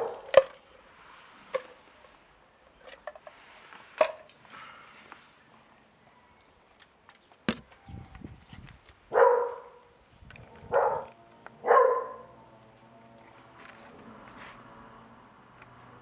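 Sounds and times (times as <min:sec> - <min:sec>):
dog barking: 0:00.0 - 0:00.3, 0:09.1 - 0:09.9, 0:10.7 - 0:12.4
handling noise: 0:07.2 - 0:09.6.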